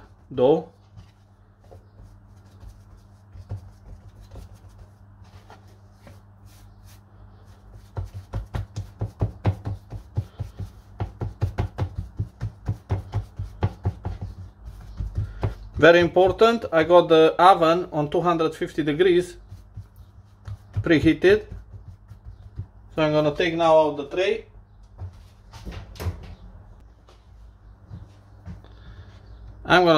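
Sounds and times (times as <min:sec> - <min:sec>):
soft thumps of patting dough: 0:00.0 - 0:17.0, 0:18.7 - 0:23.6
hands rubbing dough: 0:00.0 - 0:17.1, 0:18.0 - 0:23.8.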